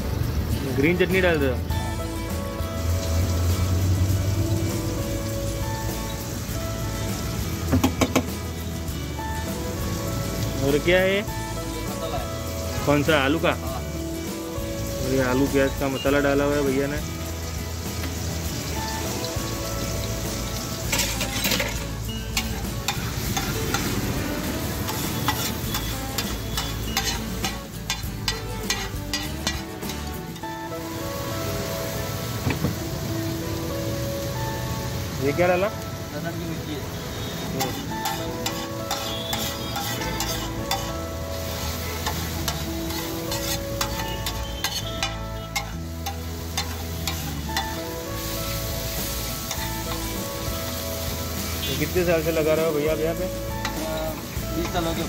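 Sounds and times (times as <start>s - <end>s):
vegetables sizzling on griddle: 0.0s - 55.0s
spatula scraping metal plate: 24.9s - 30.0s, 37.6s - 41.0s, 42.0s - 47.7s.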